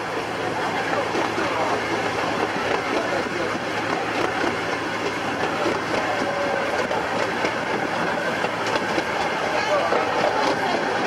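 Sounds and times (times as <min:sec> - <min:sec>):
miniature train engine hum: 0:00.0 - 0:11.0
wheels clicking over rails: 0:00.0 - 0:11.0.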